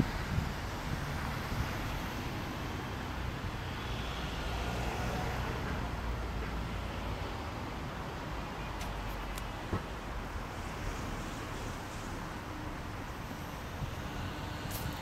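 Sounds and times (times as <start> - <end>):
wind on microphone: 0.0 - 2.4
distant road traffic rumble: 0.0 - 15.0.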